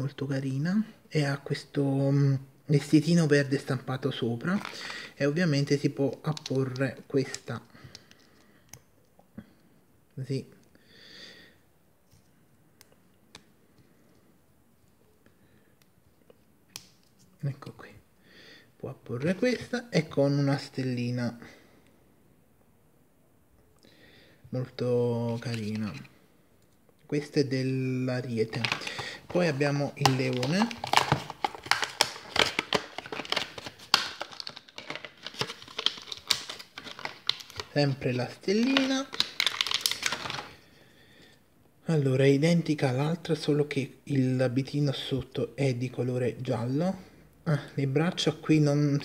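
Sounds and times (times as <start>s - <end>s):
plastic packaging crinkling: 4.4s - 5.1s, 28.3s - 40.6s.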